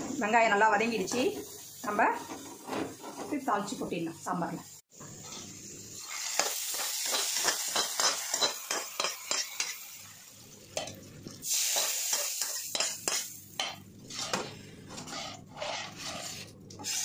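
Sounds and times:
hot oil sizzling: 0.0 - 17.0
metal spoon scraping a pan: 2.2 - 3.4, 6.1 - 9.8, 12.1 - 17.0.

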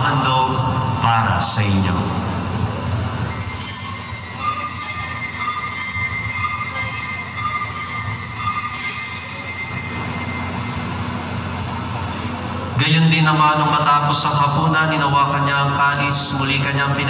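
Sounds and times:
bells ringing over loudspeakers: 3.2 - 12.4.

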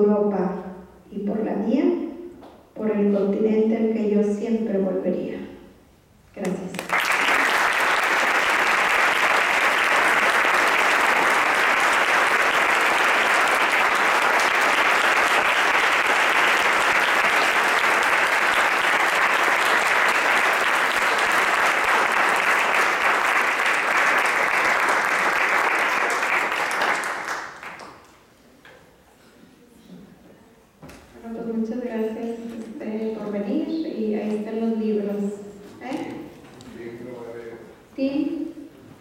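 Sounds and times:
audience applauding: 6.7 - 28.1.

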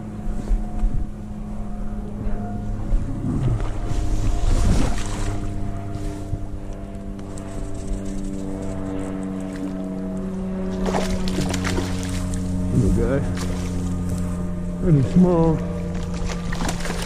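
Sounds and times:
steady low drone: 0.0 - 17.0
fish splashing in water: 10.7 - 12.6, 15.9 - 17.0.

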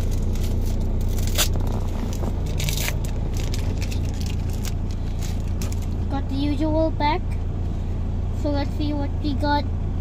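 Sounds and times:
foil pack tearing and crinkling: 0.0 - 6.0
car cabin hum: 0.0 - 10.0.

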